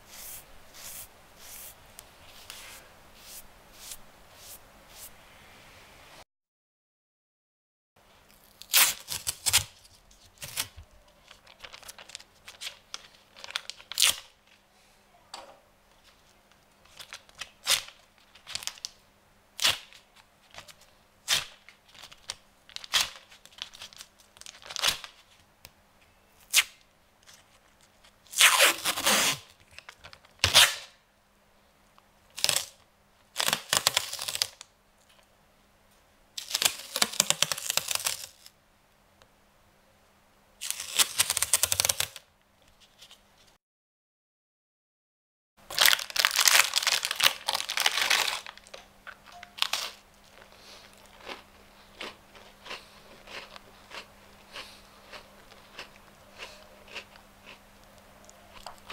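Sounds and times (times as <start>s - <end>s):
masking tape ripping: 8.3s - 9.8s, 28.3s - 29.5s, 30.4s - 31.0s, 33.4s - 34.6s, 36.4s - 38.5s, 40.6s - 42.2s, 45.7s - 48.6s.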